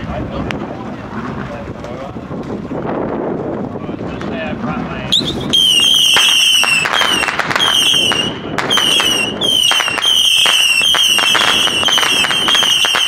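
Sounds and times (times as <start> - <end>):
fireworks crackling and popping: 5.1 - 13.0
shrill firework whistle: 5.1 - 13.0.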